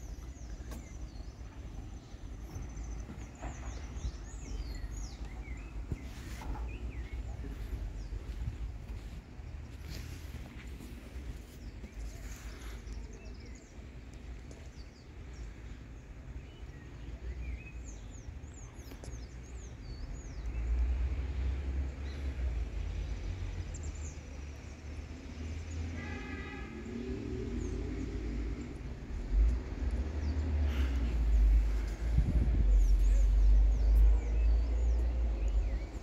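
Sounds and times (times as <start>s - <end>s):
steady low rumble: 0.0s - 20.6s, 28.5s - 36.0s.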